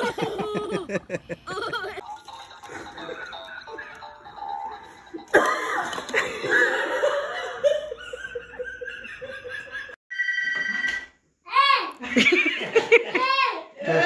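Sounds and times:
person laughing high-pitched: 0:00.0 - 0:02.0.

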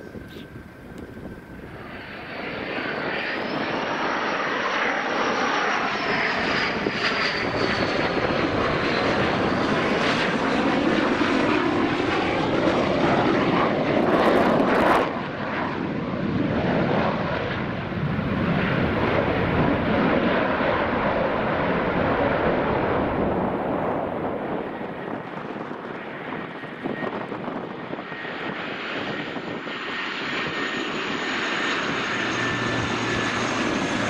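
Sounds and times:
high jet whine: 0:00.0 - 0:34.0
loud jet rush: 0:17.6 - 0:34.0.

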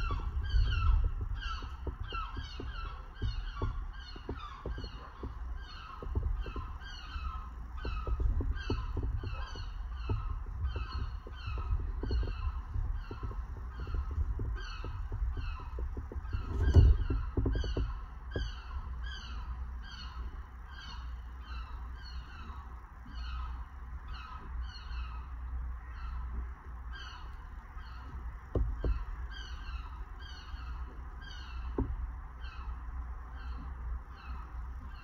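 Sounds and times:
knocks: 0:00.0 - 0:18.7, 0:28.1 - 0:29.2, 0:31.6 - 0:32.1
bird honking calls: 0:00.0 - 0:35.0
steady low rumble: 0:00.0 - 0:35.0.

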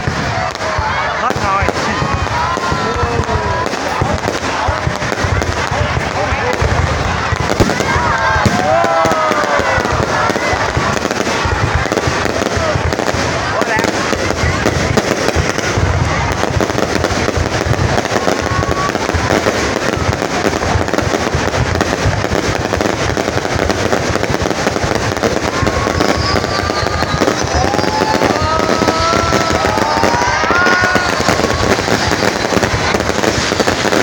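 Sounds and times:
fireworks bursting and crackling: 0:00.0 - 0:34.0
rising firework whistles: 0:07.4 - 0:34.0.

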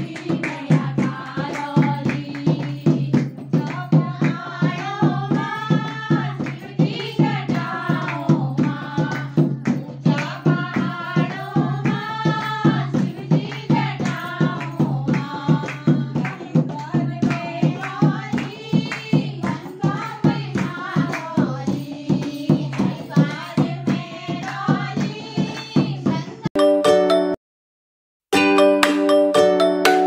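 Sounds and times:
hand-clapping: 0:00.0 - 0:25.8
hand drum beat: 0:00.0 - 0:26.4
women singing devotional song: 0:00.0 - 0:26.4.

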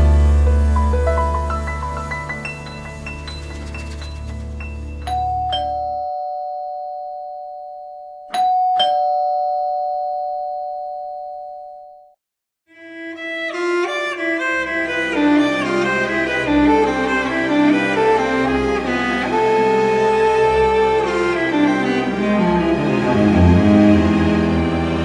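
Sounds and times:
string music: 0:00.0 - 0:05.2, 0:12.7 - 0:25.0
soft background music: 0:00.0 - 0:06.0, 0:13.2 - 0:25.0
doorbell ding-dong chime: 0:05.0 - 0:12.1.

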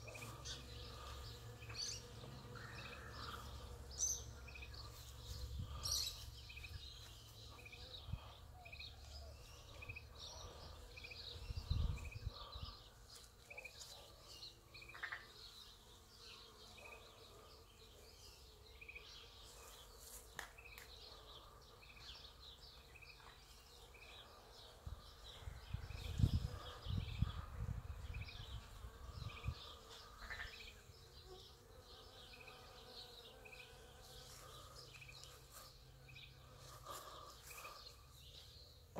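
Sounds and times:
bees buzzing: 0:00.0 - 0:07.7.

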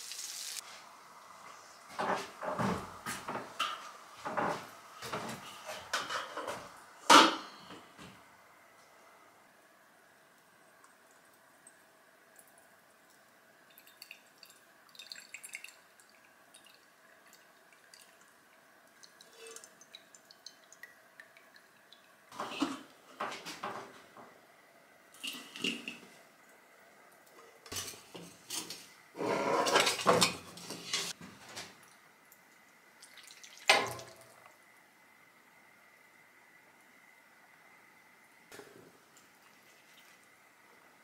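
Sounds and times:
pan clattering and scraping: 0:02.0 - 0:07.7, 0:22.4 - 0:23.9, 0:27.7 - 0:31.2
oil dripping into glass jar: 0:10.8 - 0:18.3.

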